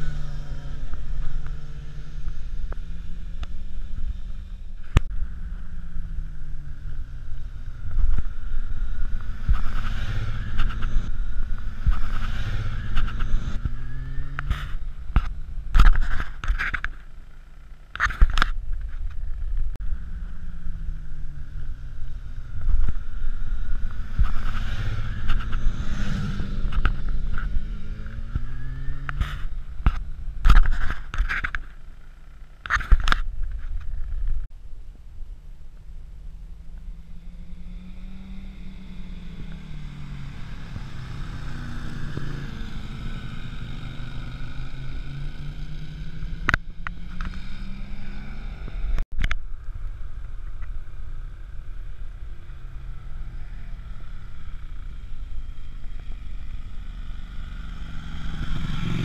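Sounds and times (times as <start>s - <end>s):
motorcycles passing at speed: 0.0s - 16.8s, 19.8s - 31.1s, 36.5s - 49.1s, 50.2s - 59.0s.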